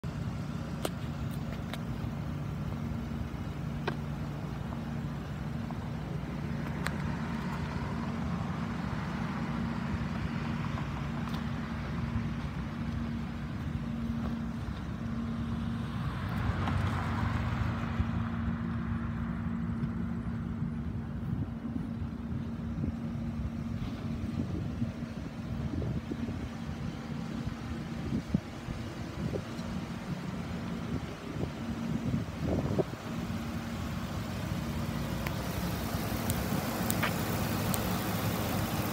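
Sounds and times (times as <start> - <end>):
truck engine idling: 0.0 - 16.2, 18.1 - 38.9.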